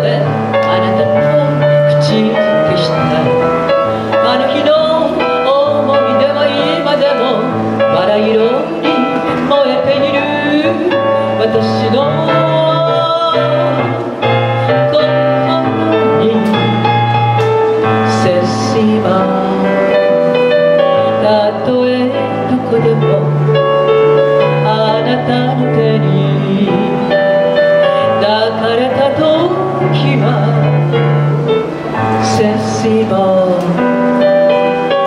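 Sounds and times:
woman singing: 0.0 - 34.7
instrumental accompaniment with bass: 0.0 - 35.0.

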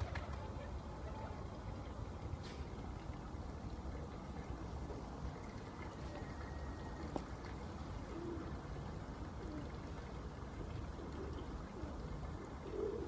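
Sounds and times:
pigeons cooing softly: 4.0 - 13.0.

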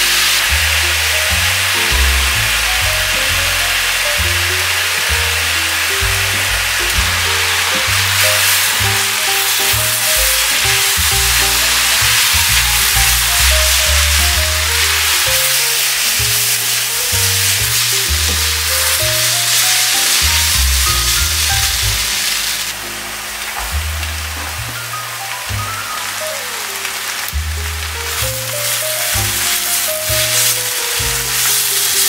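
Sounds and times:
background music: 0.0 - 32.0
food sizzling in a frying pan: 0.0 - 32.0
spatula tossing food in pan: 6.3 - 22.6, 26.9 - 32.0.

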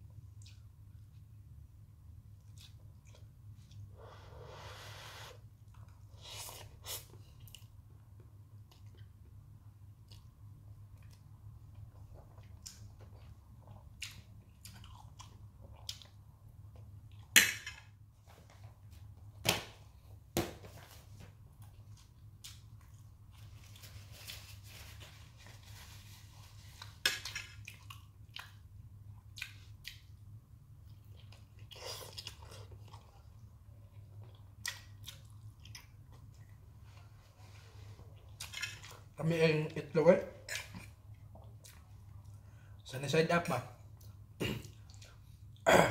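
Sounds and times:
person chewing noodles: 0.1 - 1.4, 2.2 - 17.3, 26.3 - 39.1, 40.5 - 42.8, 43.9 - 45.6.

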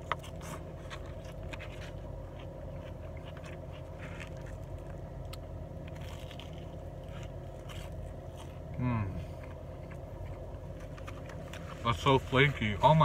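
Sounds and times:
crunchy chewing: 0.0 - 11.8
low car cabin hum: 0.0 - 13.0.

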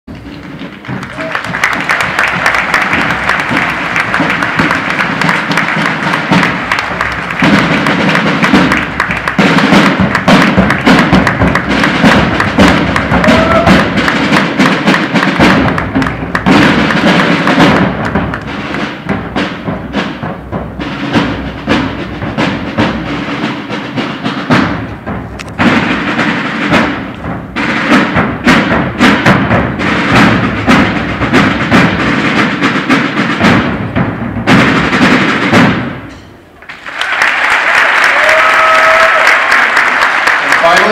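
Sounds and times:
marching band playing: 0.1 - 40.9
sharp drum hits: 0.9 - 36.6.

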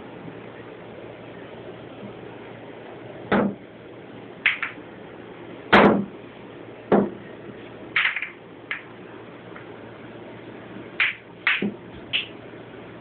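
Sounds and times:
billiard balls clacking: 4.5 - 4.8, 8.0 - 8.9, 11.0 - 12.4.

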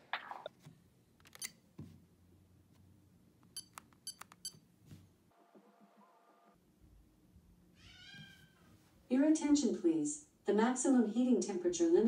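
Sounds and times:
thermostat short beeps: 3.6 - 4.6.

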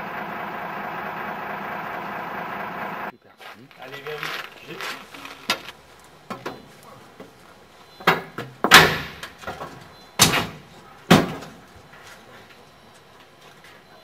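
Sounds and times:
wood and metal bangs: 8.0 - 12.0.

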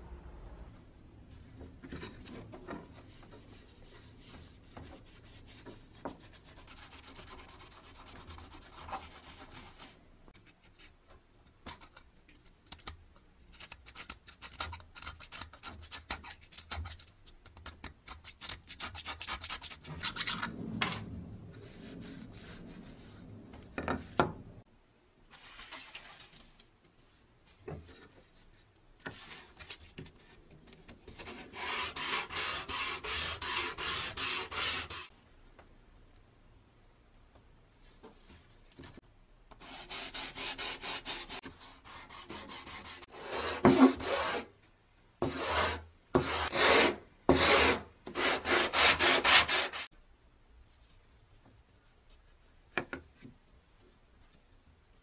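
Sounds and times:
scraping strokes on wood: 31.1 - 35.1, 39.6 - 44.5, 45.2 - 49.9
board sanding on sandpaper: 31.2 - 35.1, 39.6 - 44.5, 45.2 - 49.9.

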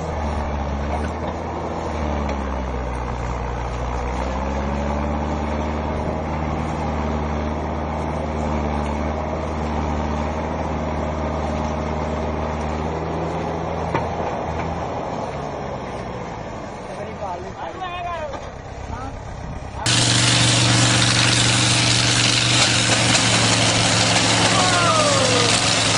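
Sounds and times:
tractor engine under load: 0.0 - 25.9.

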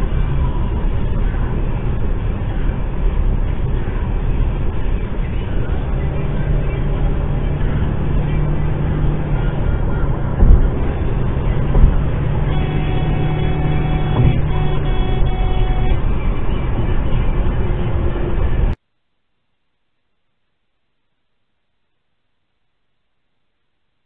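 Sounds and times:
car road and engine noise: 0.0 - 18.8.

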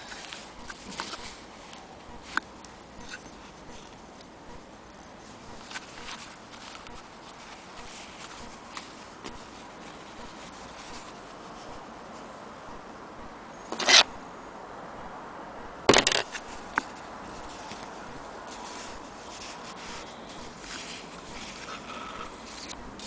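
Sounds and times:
cloth rubbing: 5.2 - 12.2, 16.4 - 23.0.

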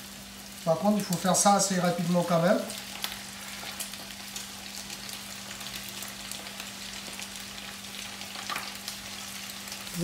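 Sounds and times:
chicken deep-frying in oil: 0.0 - 10.0.

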